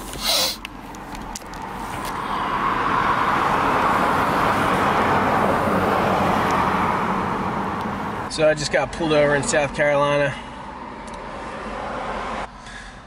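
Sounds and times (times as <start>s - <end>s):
road traffic passing: 0.0s - 13.0s.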